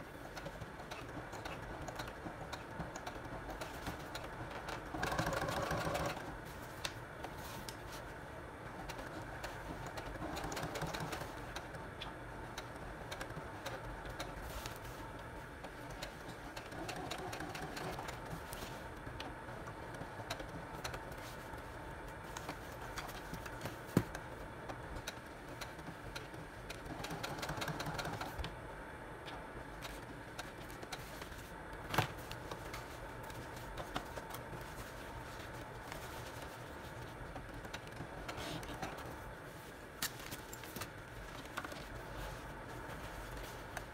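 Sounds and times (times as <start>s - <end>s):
sewing machine needle ticking: 0.3s - 6.2s.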